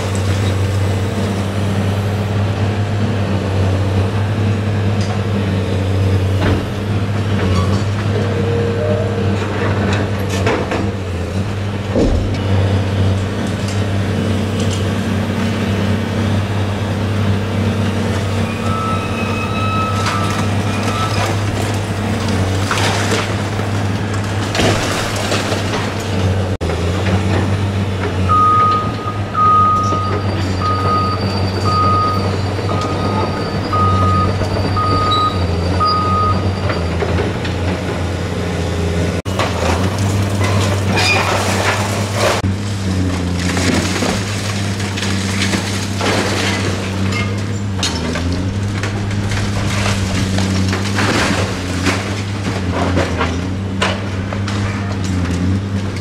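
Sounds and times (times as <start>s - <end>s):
excavator diesel engine running: 0.0s - 56.0s
concrete debris crashing down: 19.6s - 26.4s, 39.3s - 55.5s
backup alarm beeping: 28.3s - 36.6s.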